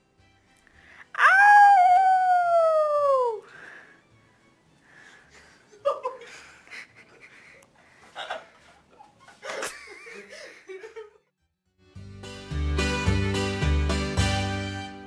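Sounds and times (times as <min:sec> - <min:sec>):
music: 0:00.0 - 0:01.2, 0:03.4 - 0:05.8, 0:11.4 - 0:15.0
man laughing: 0:05.7 - 0:11.3.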